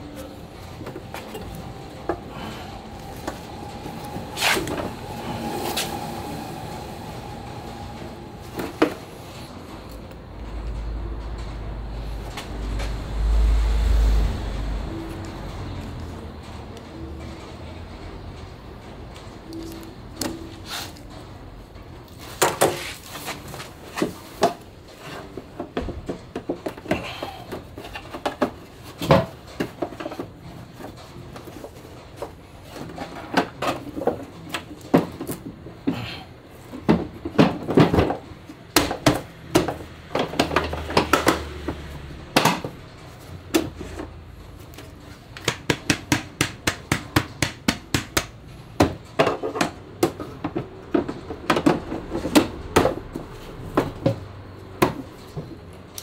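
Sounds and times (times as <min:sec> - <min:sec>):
plastic parts knocking and clicking: 0:36.8 - 0:42.8, 0:44.7 - 0:56.0.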